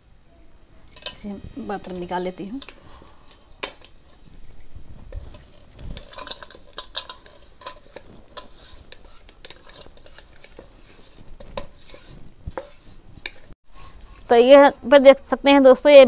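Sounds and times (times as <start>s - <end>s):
metal jar tapping and clinking: 0.8s - 10.7s.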